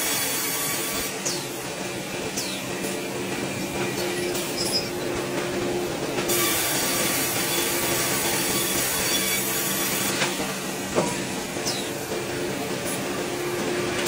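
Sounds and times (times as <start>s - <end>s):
sawmill machine hum: 0.0s - 14.0s
saws hissing into wood: 6.3s - 12.0s.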